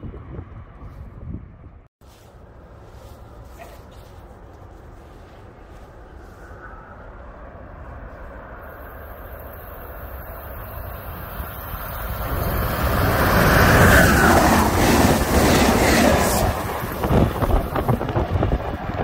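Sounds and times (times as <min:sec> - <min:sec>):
train passing at speed: 0:04.4 - 0:19.0.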